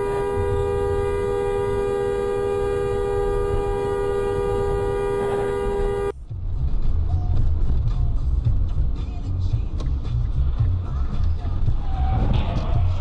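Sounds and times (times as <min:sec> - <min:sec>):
two-tone vehicle horn: 0:00.0 - 0:06.1
engine and road noise: 0:00.0 - 0:13.0.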